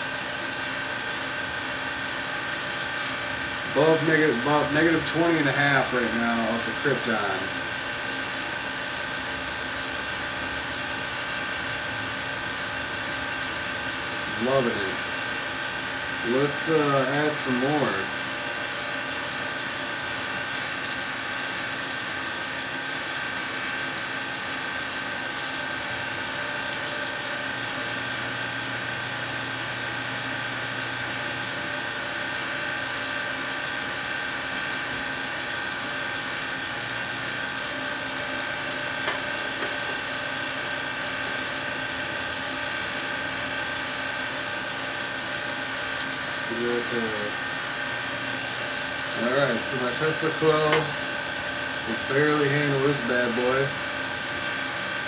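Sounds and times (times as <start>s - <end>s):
tesla coil buzzing and hissing: 2.5s - 7.7s, 13.9s - 18.1s, 36.0s - 43.9s, 44.7s - 55.0s.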